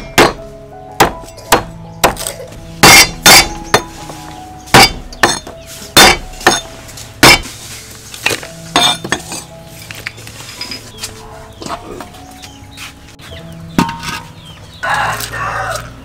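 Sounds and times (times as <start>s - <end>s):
cleaver chopping on wooden block: 0.0s - 0.4s, 1.0s - 3.9s, 4.7s - 7.5s.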